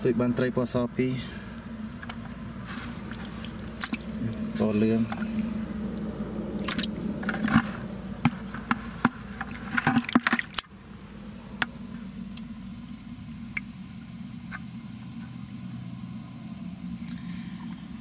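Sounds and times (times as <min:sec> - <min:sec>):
steady low hum: 0:00.0 - 0:18.0
fish slapping in bucket of water: 0:02.1 - 0:10.9.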